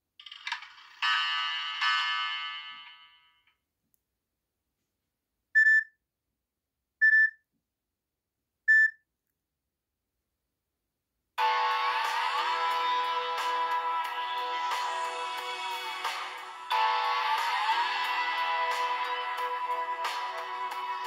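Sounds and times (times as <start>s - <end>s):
short phone beeps: 5.6s - 5.9s, 7.0s - 7.4s, 8.7s - 9.0s.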